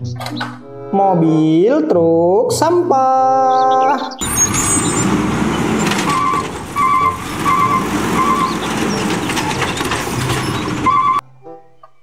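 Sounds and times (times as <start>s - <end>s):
garbage truck running: 4.2s - 11.2s.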